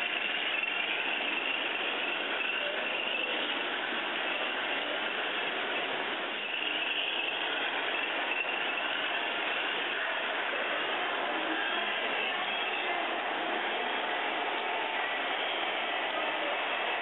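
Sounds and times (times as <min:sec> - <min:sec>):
train wheels rattling on track: 0:00.0 - 0:17.0.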